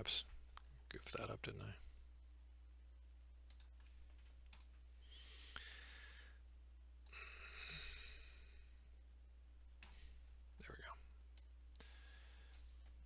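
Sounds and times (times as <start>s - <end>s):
low steady hum: 0.0s - 13.0s
computer keys clicking: 3.4s - 4.8s, 12.5s - 12.8s
soft breathy noises: 5.0s - 6.5s, 7.1s - 9.0s, 9.8s - 13.0s.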